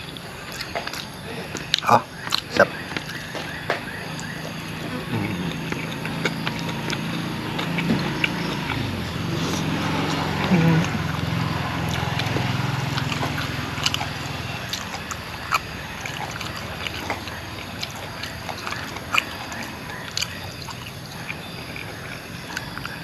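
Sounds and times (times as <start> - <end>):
person chewing food: 0.0 - 23.0.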